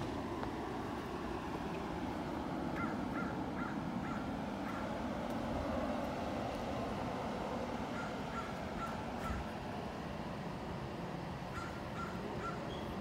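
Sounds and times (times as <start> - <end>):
steady background hiss: 0.0 - 13.0
bird calling: 2.7 - 5.0, 7.9 - 9.6, 11.5 - 13.0.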